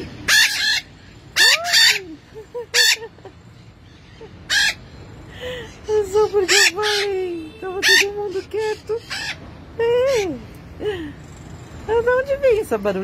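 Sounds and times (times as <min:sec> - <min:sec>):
parakeets screeching: 0:00.0 - 0:10.5
parakeets chattering softly: 0:00.0 - 0:12.7.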